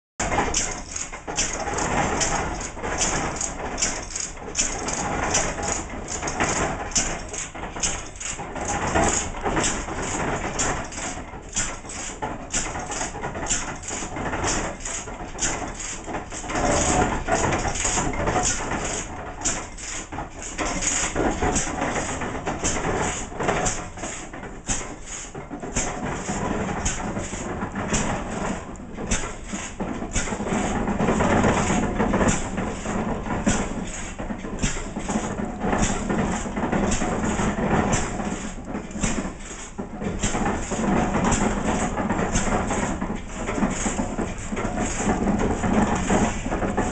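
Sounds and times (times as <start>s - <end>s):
stationary gas engine running: 0.2s - 46.9s.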